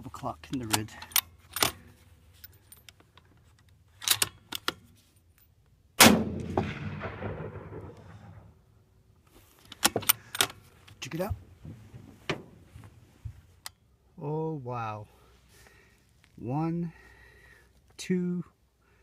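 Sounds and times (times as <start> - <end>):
metallic bolt clicks: 0.5 - 1.9, 2.8 - 5.5, 9.7 - 11.0
rifle shot: 6.0 - 8.6.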